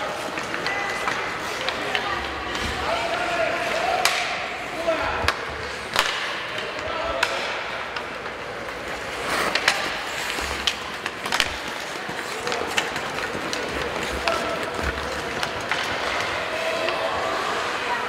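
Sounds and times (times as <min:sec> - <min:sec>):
skates scraping on ice: 0:00.0 - 0:04.1, 0:05.4 - 0:18.0
hockey sticks clacking: 0:00.0 - 0:18.0
players shouting: 0:11.8 - 0:18.0.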